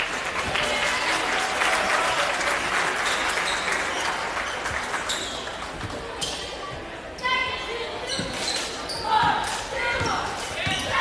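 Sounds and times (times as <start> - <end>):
crowd applauding: 0.0 - 5.7.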